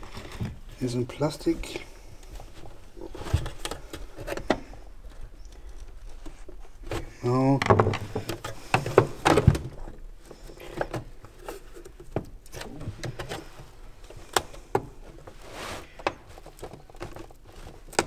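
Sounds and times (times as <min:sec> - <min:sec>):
plastic clicks and creaks: 0:03.1 - 0:18.0.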